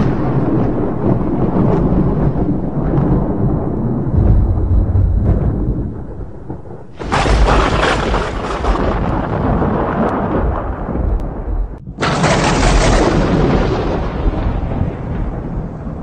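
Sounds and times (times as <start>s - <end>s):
thunder rumbling and crashing: 0.0s - 16.0s.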